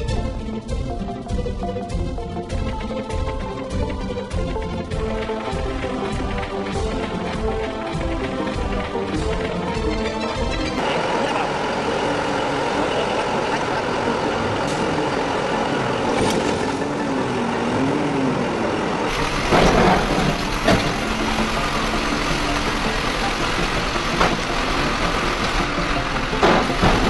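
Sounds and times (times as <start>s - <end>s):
heavy truck engines running: 0.0s - 27.0s
loud bursts and sharp knocks: 19.1s - 27.0s.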